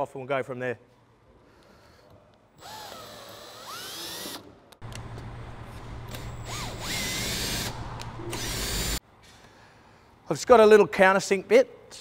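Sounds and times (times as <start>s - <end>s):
cordless drill motor whine: 2.6s - 4.4s, 6.1s - 9.0s.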